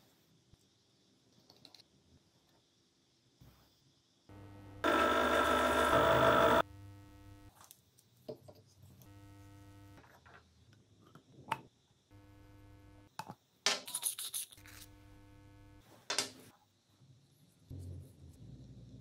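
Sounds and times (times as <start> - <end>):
small electric motor running: 4.4 - 6.7
harsh grinding: 4.8 - 6.6.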